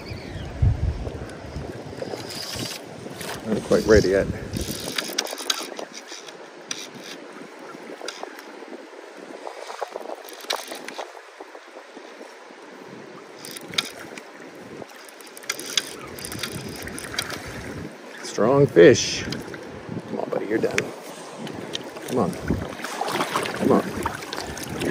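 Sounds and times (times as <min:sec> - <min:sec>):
river water rushing: 0:20.8 - 0:24.9.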